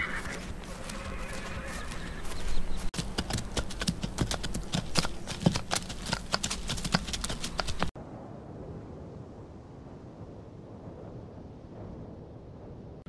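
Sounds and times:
horse hooves on hard ground: 0:00.0 - 0:08.0.

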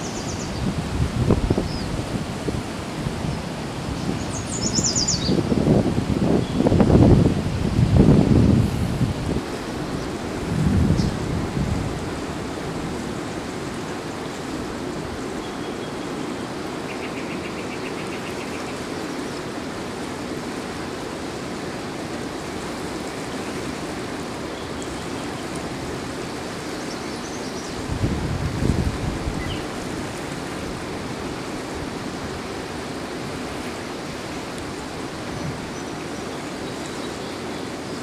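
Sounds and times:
wind buffeting the microphone: 0:00.0 - 0:15.4, 0:27.6 - 0:36.1
river current rushing: 0:00.0 - 0:38.0.

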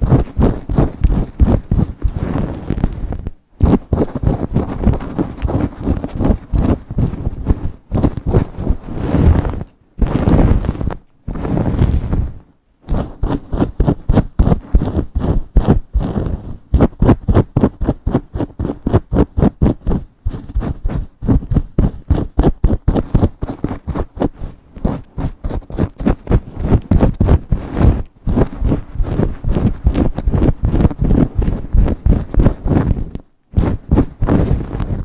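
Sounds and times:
fingernails scratching through hair: 0:00.0 - 0:35.0.

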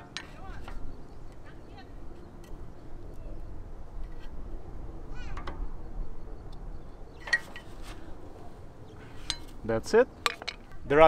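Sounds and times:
metal scraping: 0:04.0 - 0:04.7, 0:07.2 - 0:10.8.

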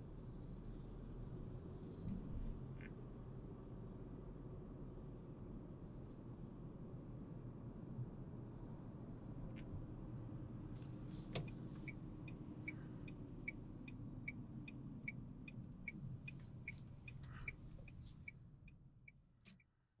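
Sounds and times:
road and engine rumble: 0:00.0 - 0:19.7
turn signal ticking: 0:11.4 - 0:19.7.

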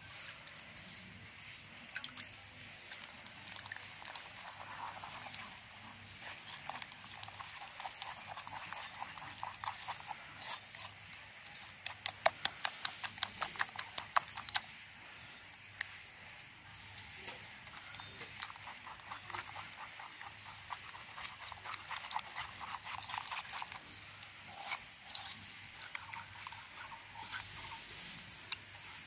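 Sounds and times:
hand mixing wet batter: 0:00.0 - 0:16.0, 0:16.6 - 0:29.0
batter slapping against bowl: 0:03.5 - 0:14.7.

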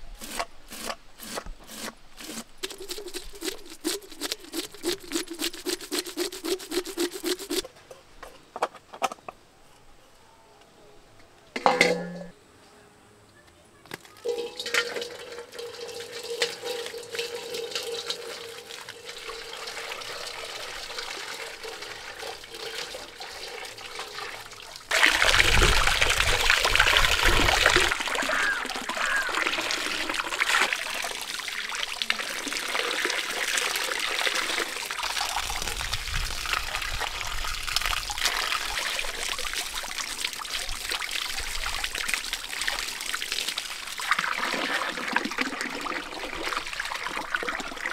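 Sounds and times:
water running from hose: 0:00.2 - 0:07.7, 0:14.2 - 0:47.9
water splashing into metal bowl: 0:14.1 - 0:47.9.

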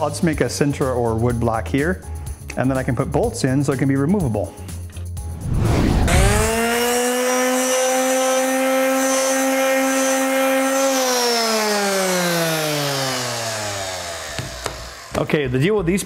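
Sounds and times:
power tool motor whining: 0:06.1 - 0:15.3.

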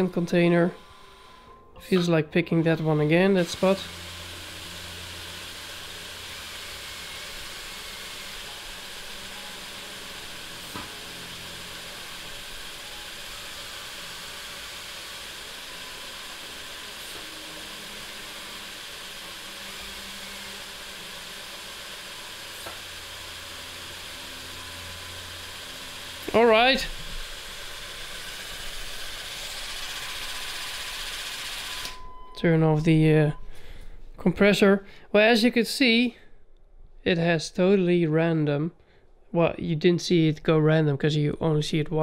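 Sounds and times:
air compressor hissing: 0:00.0 - 0:01.6, 0:02.8 - 0:32.0
toy crane motors humming: 0:02.8 - 0:32.0.

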